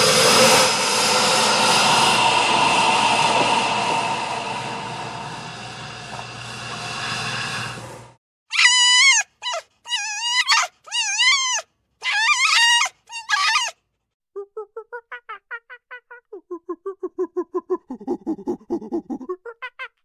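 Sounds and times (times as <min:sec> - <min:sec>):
noisy drone: 0:00.0 - 0:08.2
young animal whimpering: 0:08.6 - 0:13.8, 0:14.4 - 0:20.0.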